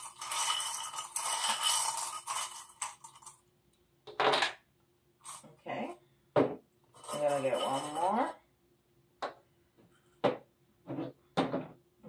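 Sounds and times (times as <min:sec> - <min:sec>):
metal charms jingling in ceramic bowl: 0:00.0 - 0:03.4, 0:07.0 - 0:08.4.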